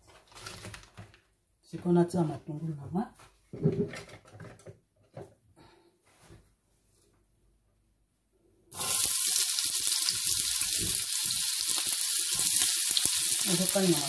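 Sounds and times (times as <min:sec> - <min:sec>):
onions sizzling in hot oil: 0:08.7 - 0:14.0.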